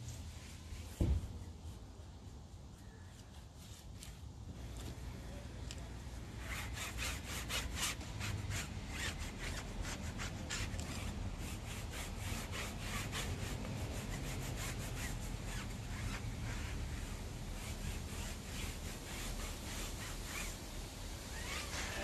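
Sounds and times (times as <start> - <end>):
sponge scrubbing a metal wheel: 6.3 - 22.0.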